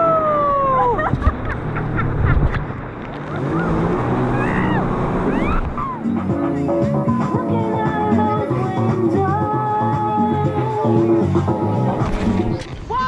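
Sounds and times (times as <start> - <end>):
jet ski engine drone: 0.0 - 9.0.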